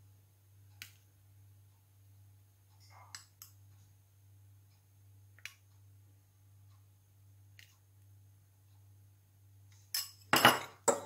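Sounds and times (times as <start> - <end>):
low steady hum: 0.0 - 11.0
metal spoon clinking on glass: 9.9 - 11.0.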